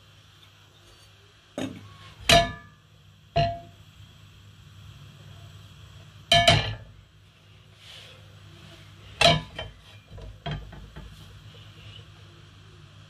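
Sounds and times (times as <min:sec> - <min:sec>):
steady low hum: 0:00.0 - 0:13.0
frying pan clanging on metal grate: 0:01.6 - 0:02.8, 0:03.4 - 0:03.8, 0:06.3 - 0:06.9, 0:09.2 - 0:11.1.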